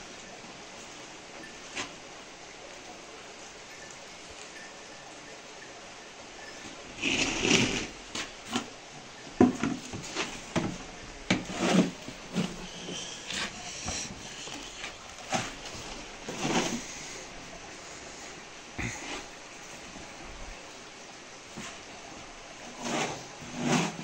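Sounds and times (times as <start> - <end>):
dry feed rustling in metal wheelbarrow: 6.6 - 8.7, 9.8 - 10.8, 11.4 - 17.4, 22.6 - 24.0.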